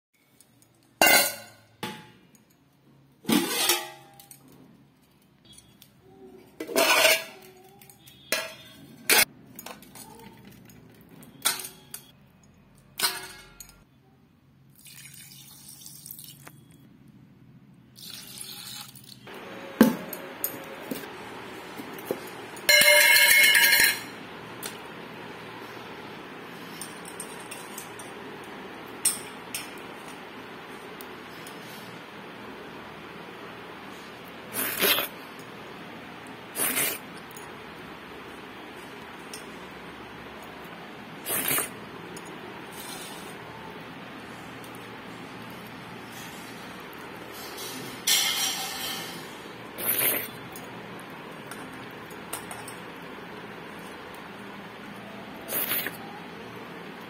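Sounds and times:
metal bowl clinking on tile floor: 1.0s - 2.6s, 6.6s - 13.8s, 21.8s - 24.8s, 26.7s - 28.3s, 47.2s - 49.4s, 51.4s - 53.0s.

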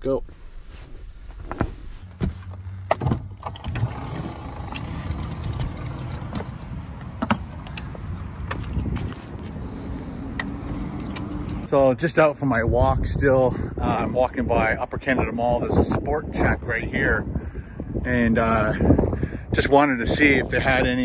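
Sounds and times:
sliding door motor running: 3.4s - 6.4s.

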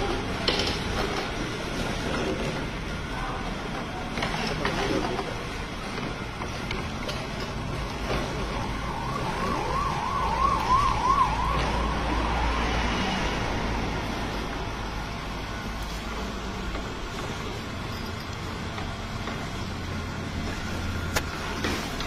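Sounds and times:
warbling siren-like tone: 8.3s - 13.7s.

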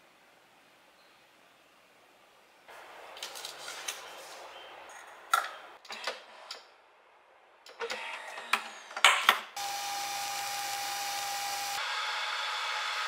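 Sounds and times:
coffee machine whirring hum: 9.6s - 13.0s.

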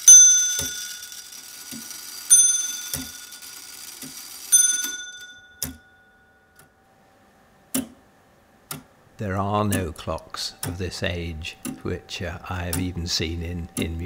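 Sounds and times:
clock bell struck by hammer: 0.0s - 1.4s, 2.3s - 3.6s, 4.5s - 6.5s
clock ticking: 0.0s - 2.0s, 2.6s - 5.8s, 7.7s - 8.0s, 9.5s - 14.0s.

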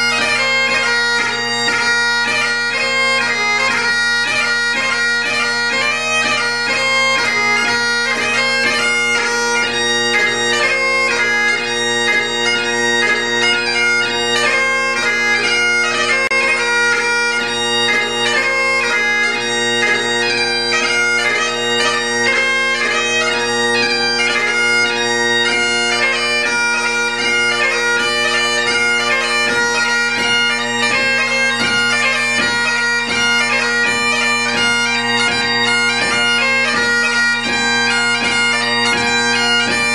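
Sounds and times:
bagpipe chanter melody: 0.0s - 39.9s
bagpipe drones: 0.0s - 39.9s.

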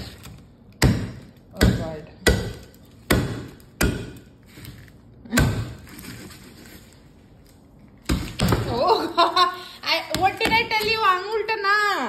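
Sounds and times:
cleaver chopping on wooden board: 0.8s - 4.3s.

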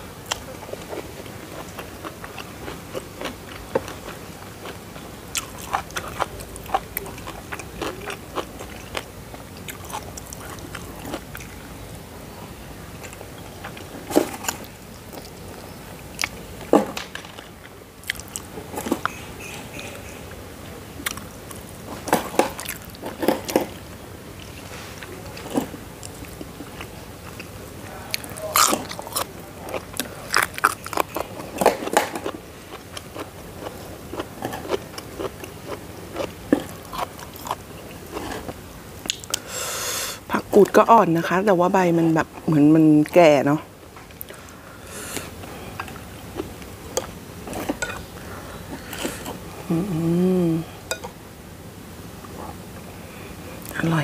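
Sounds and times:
person chewing and biting: 28.2s - 39.4s.

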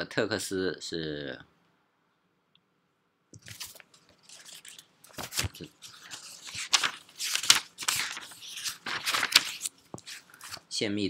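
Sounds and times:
crackling and crinkling: 3.4s - 10.8s.

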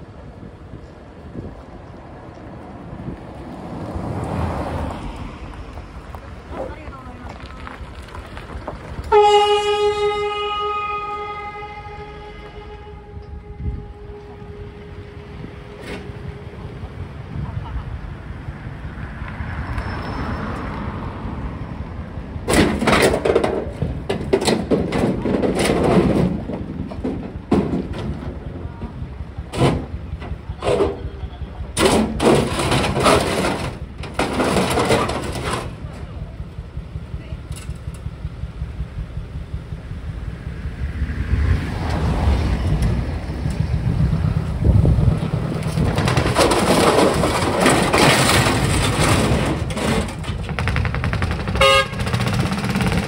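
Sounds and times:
tyres on gravel: 0.0s - 21.4s, 22.0s - 40.4s, 41.8s - 53.0s
diesel truck engine rumbling: 0.0s - 53.0s
low traffic rumble: 0.0s - 53.0s
car passing by: 2.0s - 8.5s, 18.2s - 22.2s, 40.4s - 45.8s.

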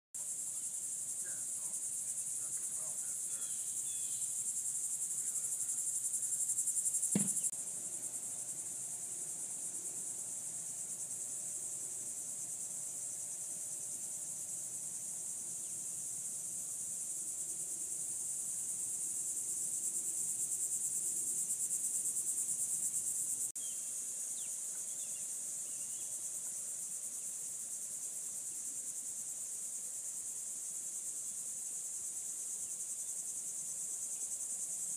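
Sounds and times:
insects trilling: 0.2s - 34.9s
low thump: 7.1s - 7.5s.

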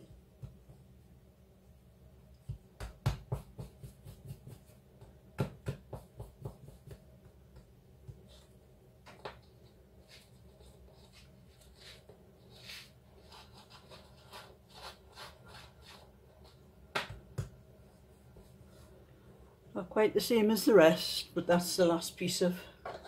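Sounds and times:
hands patting dough: 0.0s - 1.0s, 2.3s - 8.4s.

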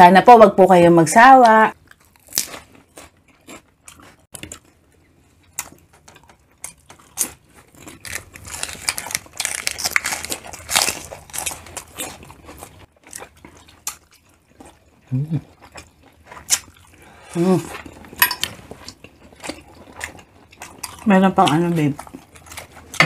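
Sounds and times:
crunching lettuce: 1.8s - 4.7s, 6.6s - 14.4s.

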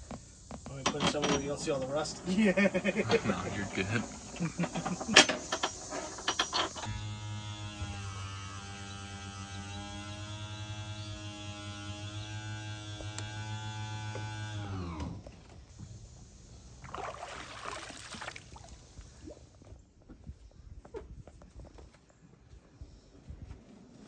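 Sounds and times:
electric pump motor running: 6.8s - 15.3s.

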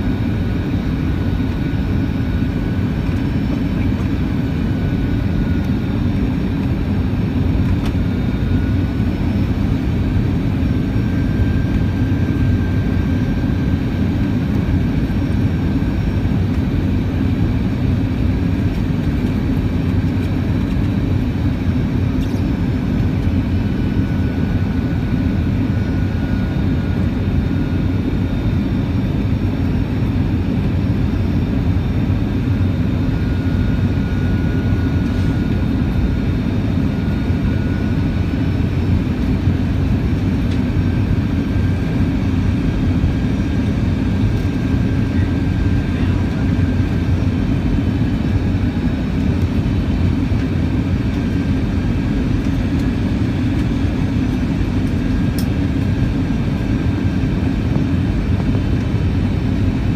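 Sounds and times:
airliner cabin engine rush: 0.0s - 59.9s
faint high whine: 20.6s - 59.7s.

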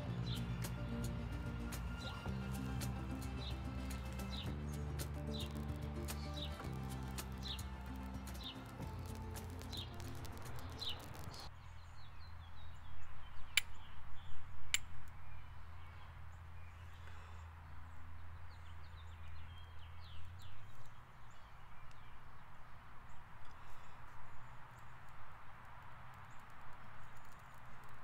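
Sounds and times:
burning tinder sputtering and crackling: 0.0s - 11.5s, 25.0s - 28.0s
songbirds chirping: 0.0s - 28.0s
sharp clicks: 2.8s - 11.5s.

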